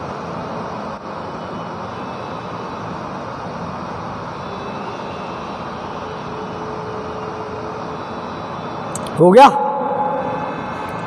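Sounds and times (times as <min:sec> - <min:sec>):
faint hum-like tone: 0:00.0 - 0:11.0
steady rushing noise: 0:08.9 - 0:11.0.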